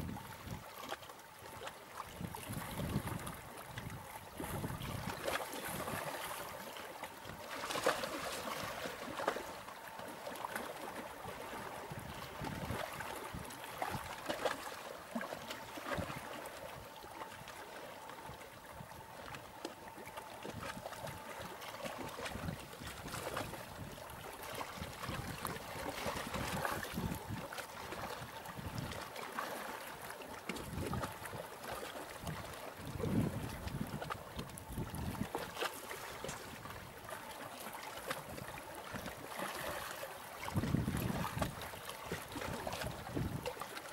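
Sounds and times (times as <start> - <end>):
waves splashing against rocks: 1.6 - 16.5.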